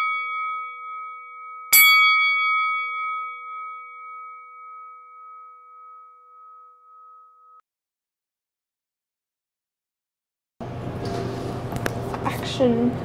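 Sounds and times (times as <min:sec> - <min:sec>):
bell-like chime ringing: 0:00.0 - 0:07.6.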